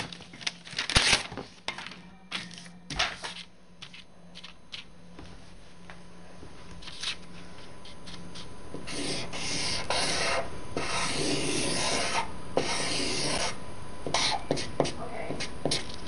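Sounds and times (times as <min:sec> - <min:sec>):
pen scratching on paper: 0:08.8 - 0:16.0.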